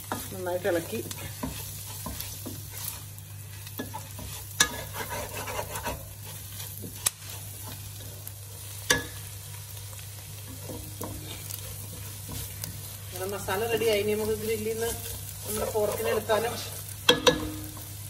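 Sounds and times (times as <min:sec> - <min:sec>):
spatula scraping pot: 0:00.0 - 0:08.0, 0:10.5 - 0:17.5
food sizzling in a pot: 0:00.0 - 0:18.0
spatula knocking against pot: 0:17.1 - 0:17.6.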